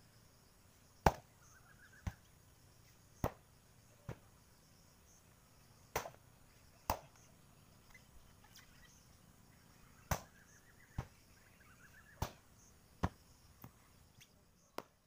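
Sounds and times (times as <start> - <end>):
hatchet chopping firewood: 1.0 - 1.3, 5.9 - 6.2.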